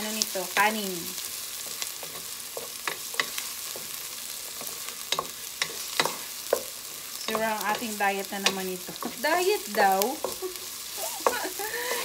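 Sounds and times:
food sizzling in hot oil: 0.0 - 12.0.

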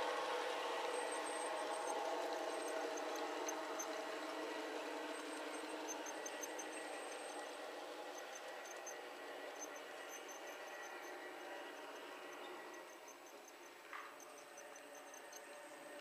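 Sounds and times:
faint high squeaks: 8.1 - 16.0.

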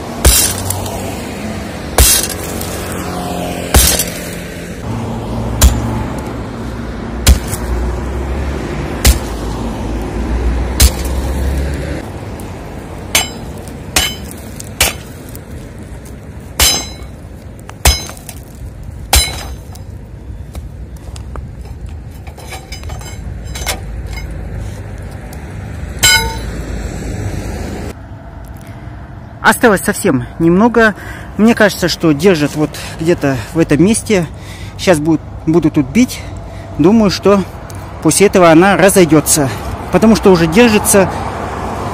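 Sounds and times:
sledgehammer striking concrete: 0.2 - 0.8, 2.0 - 2.6, 3.7 - 4.2, 5.6 - 5.9, 7.2 - 7.7, 9.0 - 9.4, 10.8 - 11.2, 13.1 - 15.2, 16.6 - 17.1, 17.8 - 18.4, 19.1 - 19.7, 26.0 - 26.5
concrete knocks and clinks: 21.7 - 24.4.

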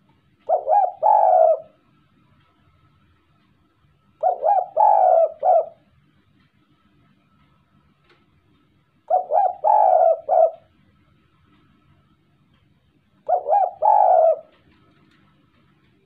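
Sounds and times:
dove cooing: 0.4 - 1.8, 4.2 - 5.9, 9.1 - 10.8, 13.2 - 14.9.

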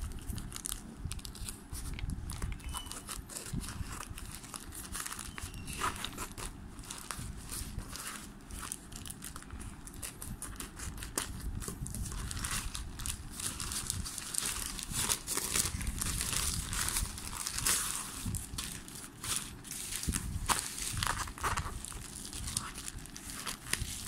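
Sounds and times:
plastic mailer crinkling: 0.0 - 24.0
scissors cutting plastic: 1.2 - 7.2.

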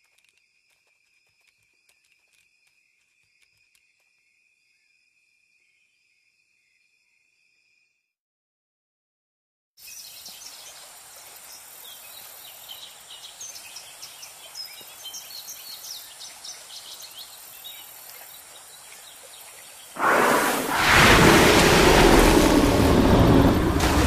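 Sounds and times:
small birds chirping: 9.8 - 20.6
steady outdoor hiss: 9.8 - 24.0
sudden loud rushing noise: 20.0 - 24.0.

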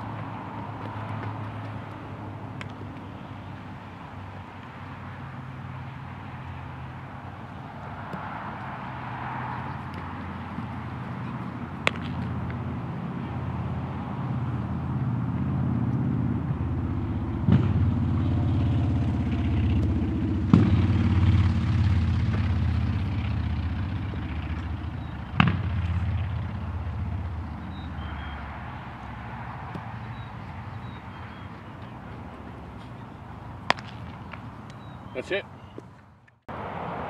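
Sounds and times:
low engine rumble: 0.0 - 35.7
baseball bat cracks: 0.2 - 3.1, 7.8 - 12.7, 28.5 - 34.8.

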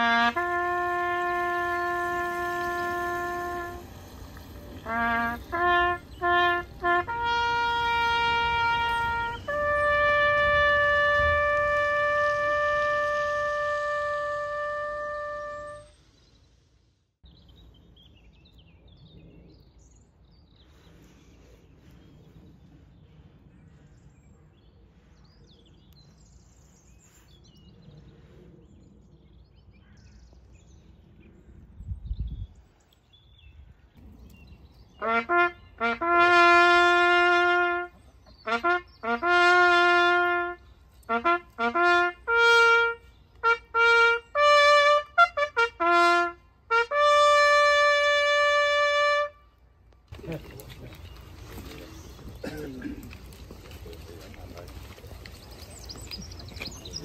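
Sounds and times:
trumpet playing: 0.0 - 16.0, 35.0 - 49.6.

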